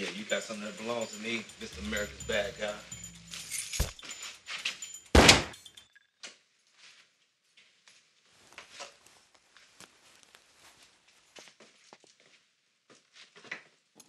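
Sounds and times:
loud sharp impact: 5.2 - 5.6.

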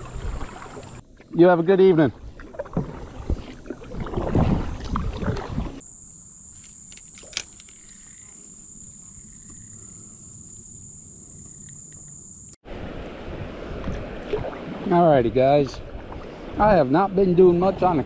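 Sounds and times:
paddle strokes splashing: 0.0 - 5.8, 12.8 - 18.0
high-pitched insect drone: 5.8 - 12.6.

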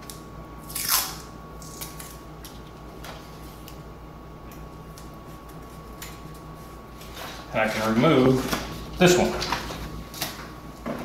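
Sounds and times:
masking tape ripping: 0.6 - 2.2.

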